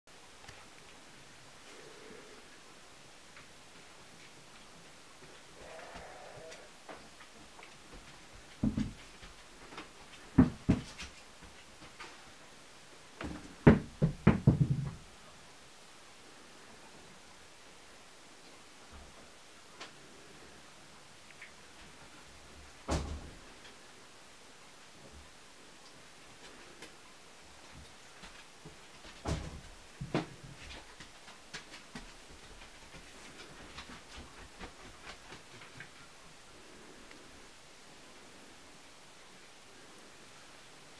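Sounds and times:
sharp knocks and thumps: 8.0 - 11.2, 13.2 - 15.1, 22.8 - 23.5, 28.7 - 35.9
knocks: 13.2 - 15.0.

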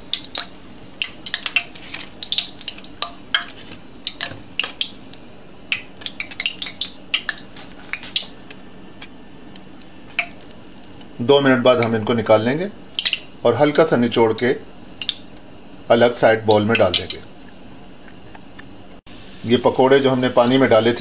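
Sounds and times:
fritters sizzling in hot oil: 0.0 - 8.4, 19.1 - 21.0.

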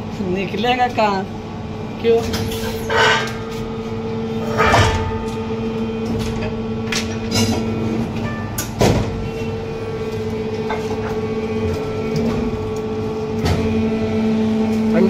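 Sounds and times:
machine humming: 0.0 - 15.0
sharp knocks and clacks of parts: 4.5 - 9.3.

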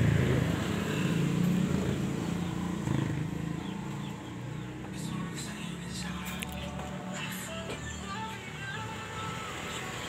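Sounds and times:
vehicle engine running: 0.0 - 10.0.

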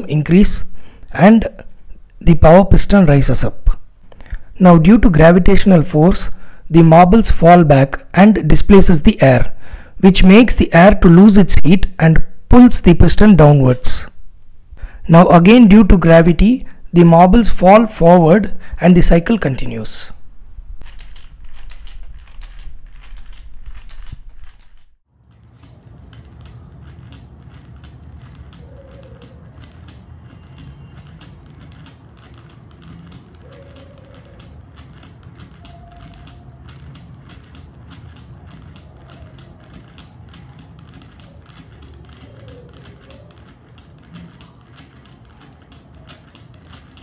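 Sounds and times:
glass marbles clicking: 20.8 - 47.0.

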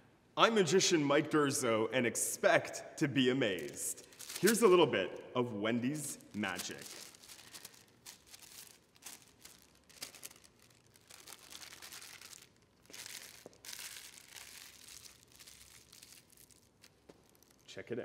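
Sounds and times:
paper being crumpled: 3.5 - 4.9, 5.8 - 17.7.

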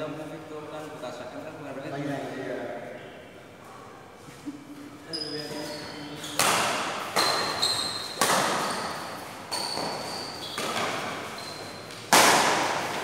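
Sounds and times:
shoes squeaking on court floor: 5.0 - 12.2
badminton racket hitting shuttlecock: 6.3 - 13.0.

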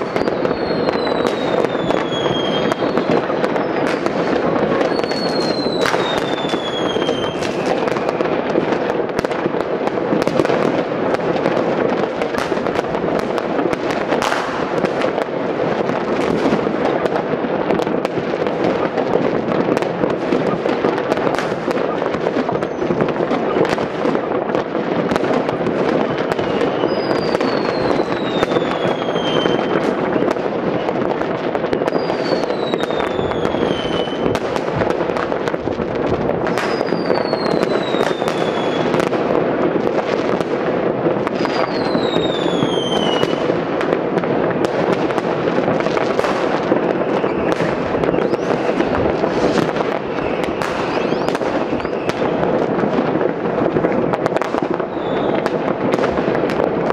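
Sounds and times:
falling firework whistles: 0.0 - 8.4, 22.3 - 24.0, 25.8 - 35.6, 36.4 - 39.1, 41.3 - 43.5, 45.9 - 52.4, 54.2 - 55.6
fireworks crackling and banging: 0.0 - 56.9.

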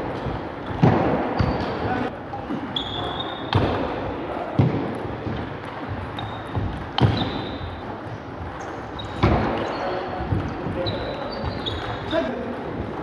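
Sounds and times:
short high squeaks: 2.7 - 3.5, 10.8 - 12.2.

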